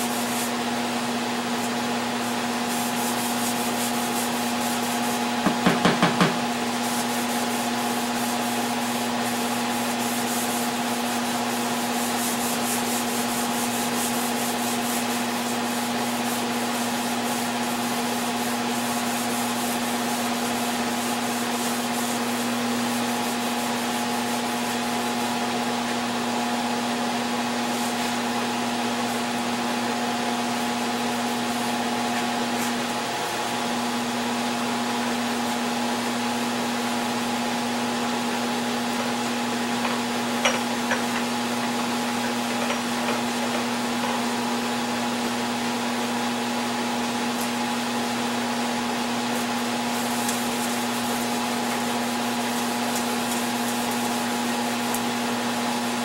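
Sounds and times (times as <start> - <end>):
power sander sanding wood: 0.0 - 25.6, 34.8 - 55.7
knocks: 5.5 - 6.4.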